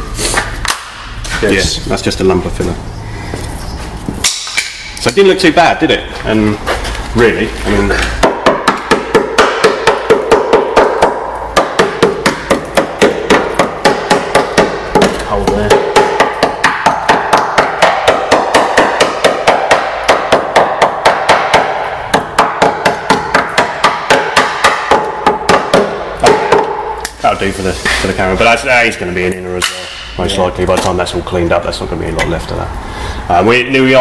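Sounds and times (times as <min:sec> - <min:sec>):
hammer tapping on metal: 0:08.2 - 0:27.1.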